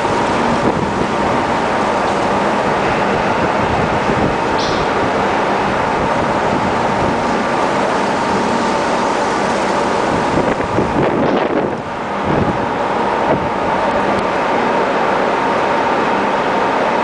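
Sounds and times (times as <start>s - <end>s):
wind on microphone: 0.0s - 8.0s, 9.8s - 14.2s
faint ship machinery hum: 0.0s - 17.0s.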